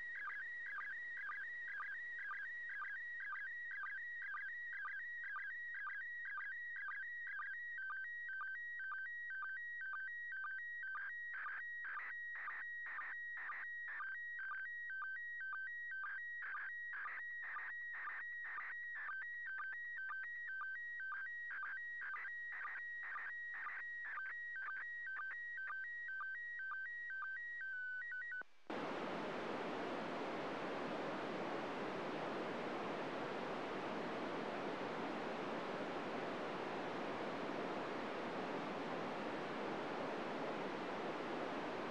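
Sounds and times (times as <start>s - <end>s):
radio static: 28.7s - 41.9s.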